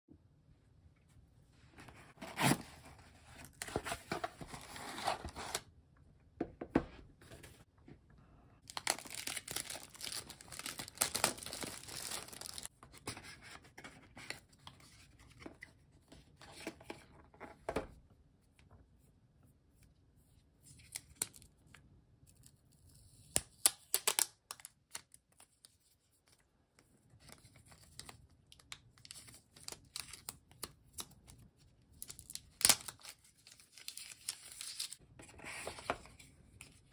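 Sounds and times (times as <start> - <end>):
packing paper crinkling: 8.6 - 12.7, 32.1 - 35.0.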